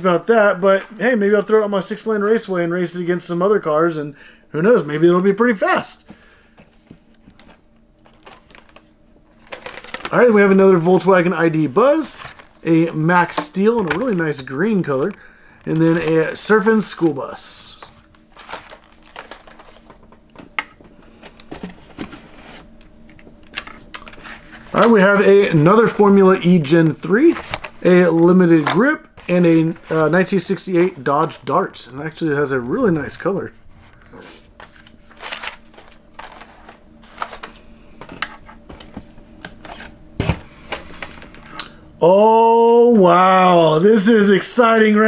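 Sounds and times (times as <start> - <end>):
plastic and card rustling: 6.4 - 41.6.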